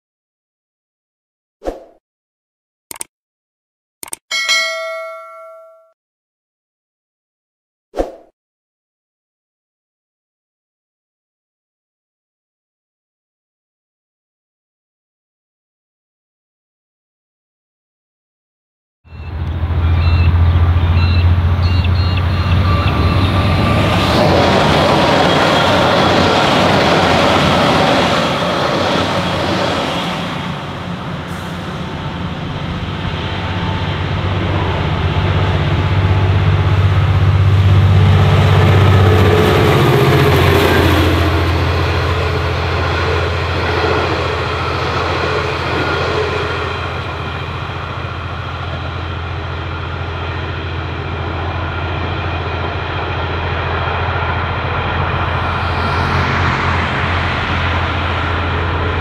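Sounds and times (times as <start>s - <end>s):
diesel locomotive engine drone: 19.1s - 59.0s
electric train rumbling: 19.1s - 59.0s
train wheels rolling on track: 19.2s - 59.0s.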